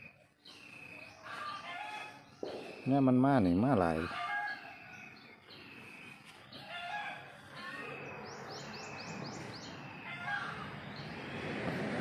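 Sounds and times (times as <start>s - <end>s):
birds chirping: 0.0s - 12.0s
rooster crowing: 6.7s - 7.4s.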